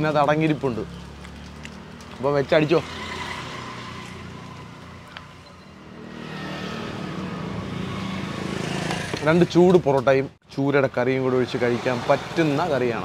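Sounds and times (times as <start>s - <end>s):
vehicle engine passing: 0.4s - 9.5s.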